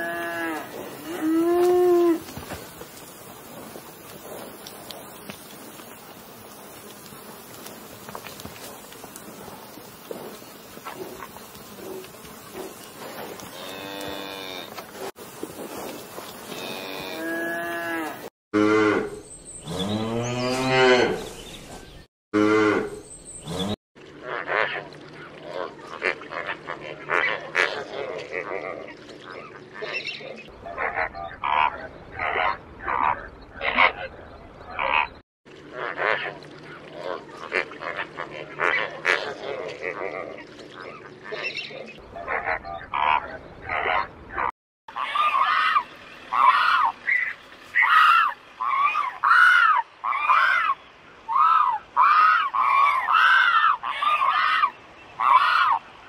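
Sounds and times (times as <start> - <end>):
cattle mooing: 0.0 - 2.3, 13.3 - 14.8, 16.5 - 19.1
flamingos honking and chattering: 24.2 - 55.9
bird calls: 29.0 - 35.2, 40.4 - 56.0.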